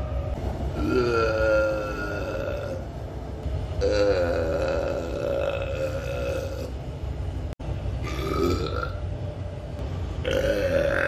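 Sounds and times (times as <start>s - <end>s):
man burping: 3.8s - 6.7s, 8.0s - 9.0s, 10.2s - 11.0s.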